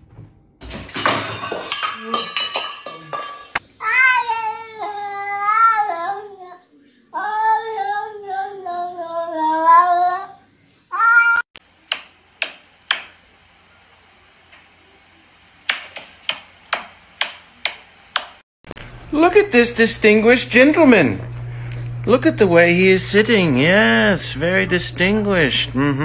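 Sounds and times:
cat meowing: 0:10.9 - 0:11.5.

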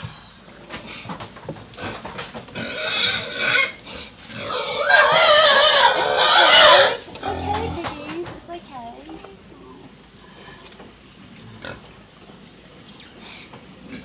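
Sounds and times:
pigs squealing: 0:02.6 - 0:07.9.

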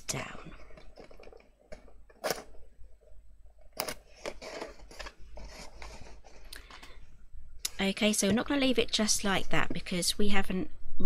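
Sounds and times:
card rustling: 0:00.4 - 0:02.8, 0:03.6 - 0:07.0.

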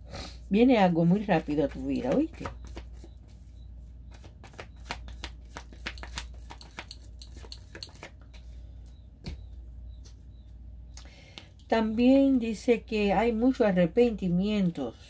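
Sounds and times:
cards being shuffled: 0:01.4 - 0:03.5, 0:04.1 - 0:08.6.

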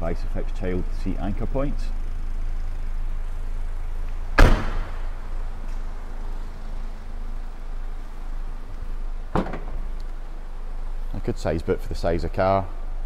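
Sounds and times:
steady low hum: 0:00.0 - 0:13.0
car door shutting: 0:04.1 - 0:05.1, 0:09.3 - 0:10.2.

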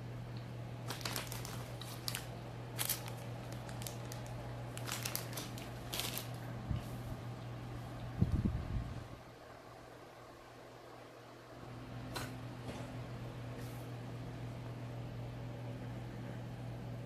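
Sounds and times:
steady low hum: 0:00.0 - 0:17.0
plastic packaging crinkling: 0:00.8 - 0:06.5.

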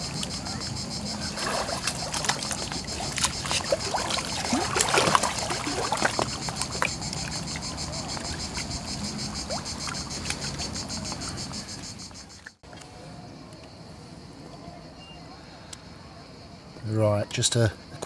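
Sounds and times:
cicadas chorus: 0:00.0 - 0:18.0
water splashing as person wades: 0:01.1 - 0:11.0.

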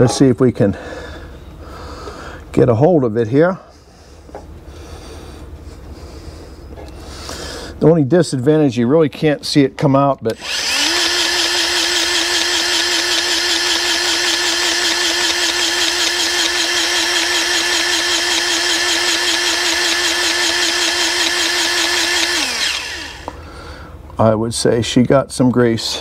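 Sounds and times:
grease gun motor whine: 0:10.3 - 0:23.4.

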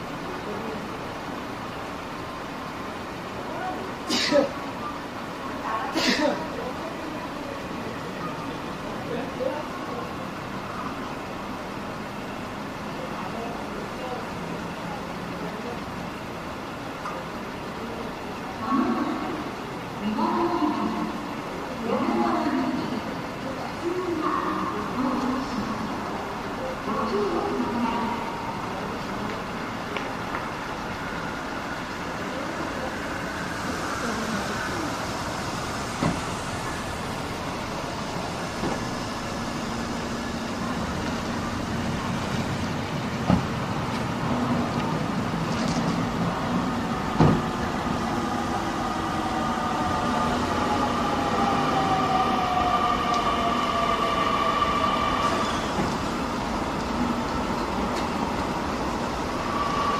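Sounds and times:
electric train whine slowing: 0:46.6 - 0:57.8, 0:58.8 - 0:59.9.

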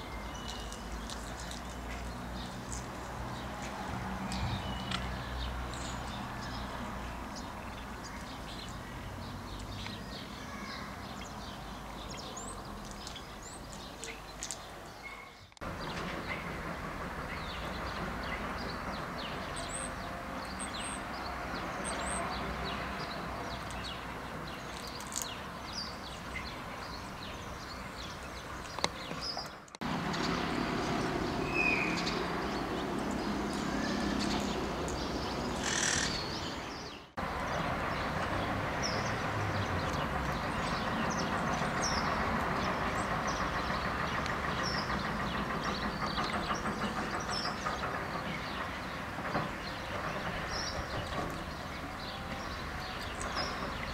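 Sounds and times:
parakeets chirping: 0:31.4 - 0:37.1.

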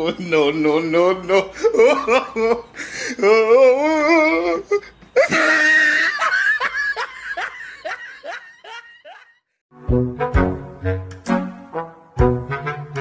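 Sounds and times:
person laughing: 0:01.2 - 0:09.4.

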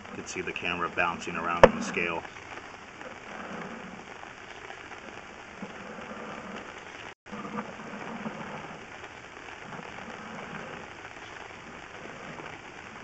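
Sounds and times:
camera rod scraping inside pipe: 0:01.5 - 0:02.0, 0:03.2 - 0:04.0, 0:05.6 - 0:06.8.

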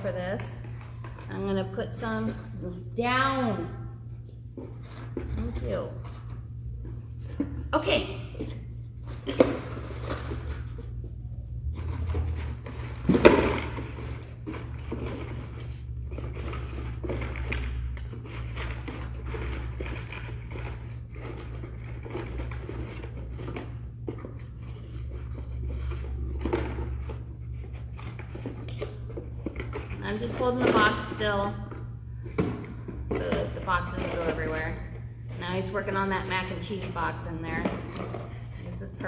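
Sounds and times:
cardboard rustling and scraping: 0:08.8 - 0:11.0, 0:11.6 - 0:31.5.

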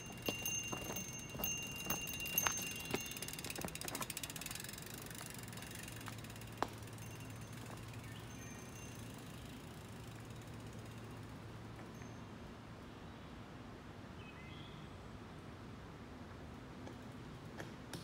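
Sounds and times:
bike freewheel hub ticking: 0:00.0 - 0:12.1.

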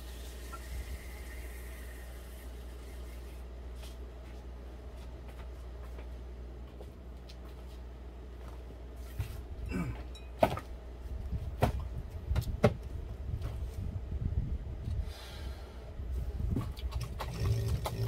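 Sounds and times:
suction machine rumbling: 0:00.0 - 0:03.4, 0:16.4 - 0:18.0.

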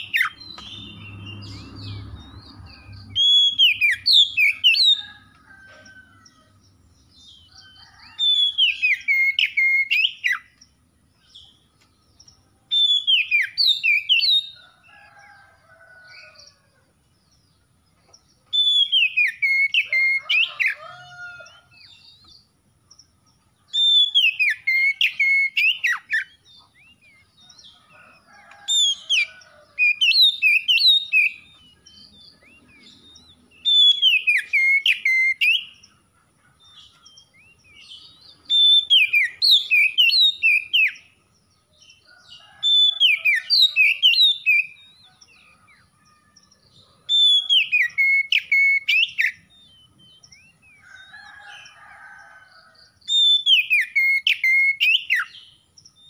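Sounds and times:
bird singing whistled notes: 0:00.0 - 0:05.1, 0:07.2 - 0:10.6, 0:12.3 - 0:14.6, 0:18.5 - 0:20.6, 0:23.7 - 0:27.3, 0:29.8 - 0:35.8, 0:37.0 - 0:41.0, 0:47.1 - 0:50.8, 0:53.1 - 0:56.0.

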